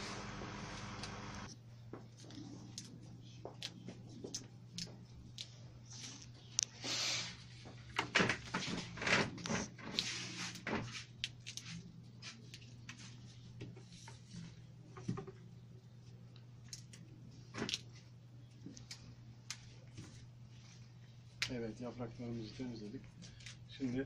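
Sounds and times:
leaves rustling and crackling: 0.0s - 1.5s
steady low hum: 0.0s - 9.0s.

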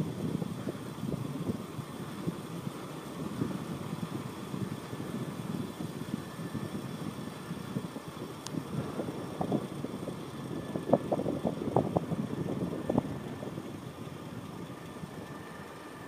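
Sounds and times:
wind on microphone: 0.0s - 15.2s
bicycle rolling on asphalt: 0.0s - 16.0s.

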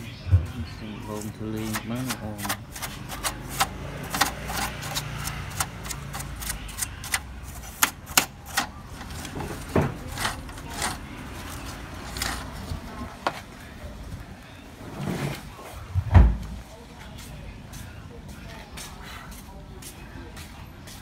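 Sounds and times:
paintbrush clicking on plastic: 1.6s - 8.7s.

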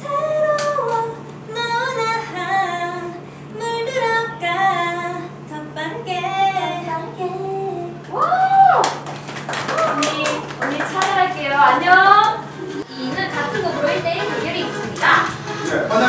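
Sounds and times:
young woman singing: 0.0s - 8.4s
steady low hum: 0.0s - 16.0s.

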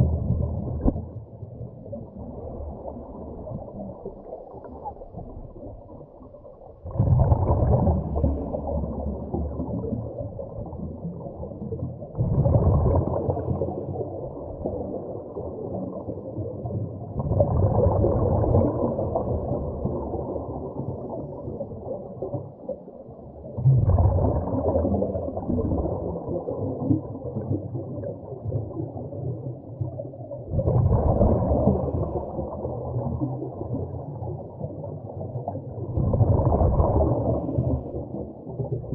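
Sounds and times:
low steady rumble: 0.0s - 4.5s
muffled exhaled air bubbling: 0.0s - 38.9s.

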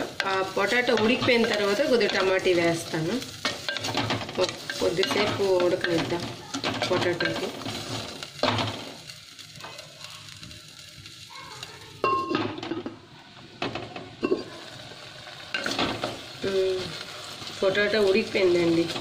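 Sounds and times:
wooden spatula scraping a pot: 0.0s - 9.0s
mixture simmering: 0.0s - 19.0s.

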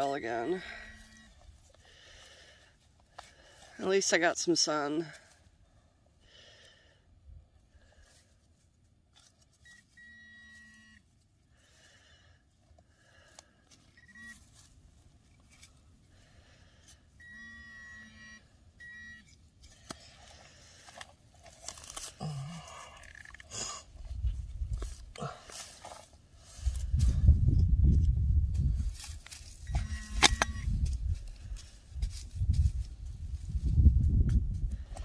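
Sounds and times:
metal detector pinpointer beeping: 0.0s - 1.5s, 9.6s - 11.1s, 13.9s - 14.5s, 17.2s - 19.5s, 29.6s - 30.8s.

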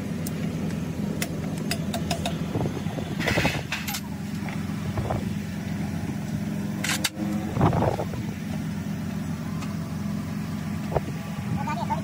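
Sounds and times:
motor droning: 4.1s - 12.0s.

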